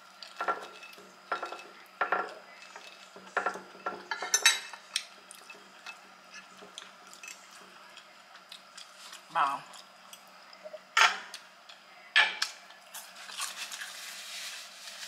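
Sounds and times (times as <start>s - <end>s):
fork scraping and clinking on plate: 0.2s - 7.6s.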